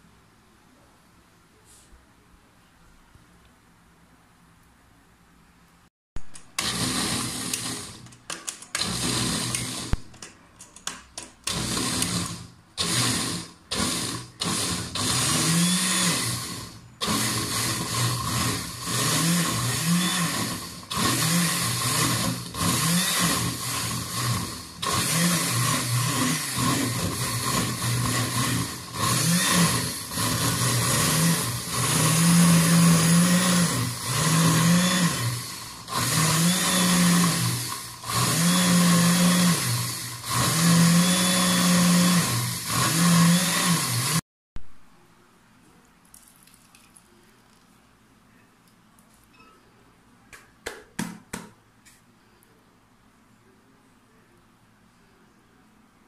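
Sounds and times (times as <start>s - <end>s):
blender grinding: 6.4s - 10.3s, 11.4s - 44.2s.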